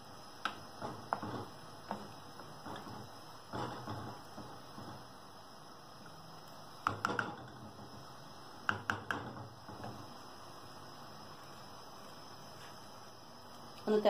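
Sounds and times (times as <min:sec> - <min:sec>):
low background noise: 0:00.0 - 0:14.0
wooden spatula tapping a pot: 0:06.8 - 0:07.8, 0:08.7 - 0:10.0.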